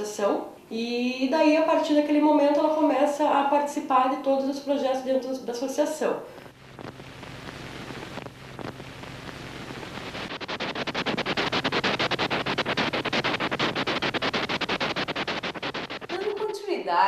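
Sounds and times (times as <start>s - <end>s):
projector low hum: 0.0s - 17.0s.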